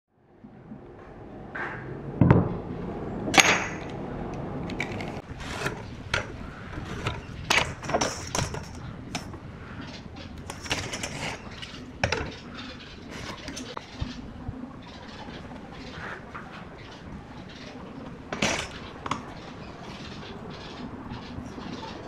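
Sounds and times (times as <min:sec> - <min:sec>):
metal tools clinking on wood: 0:04.7 - 0:09.4, 0:10.4 - 0:12.5, 0:18.3 - 0:19.2.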